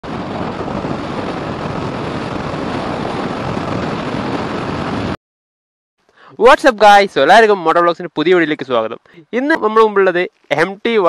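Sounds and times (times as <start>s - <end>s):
road noise: 0.0s - 5.2s
wind rush: 0.0s - 5.2s.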